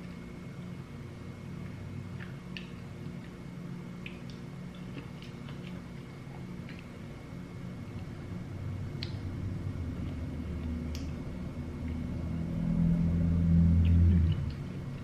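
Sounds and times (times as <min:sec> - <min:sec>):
low rumble: 0:08.0 - 0:15.0.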